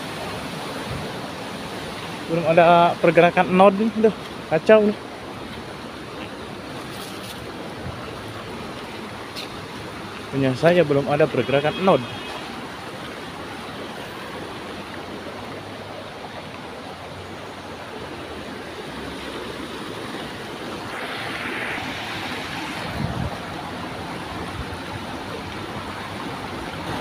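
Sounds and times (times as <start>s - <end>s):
stream water rushing over weir: 0.0s - 27.0s.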